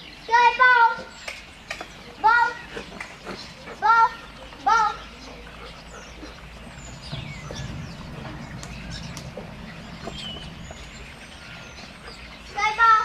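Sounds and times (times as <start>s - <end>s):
birds chirping: 0.0s - 13.0s
low rumble: 5.9s - 13.0s.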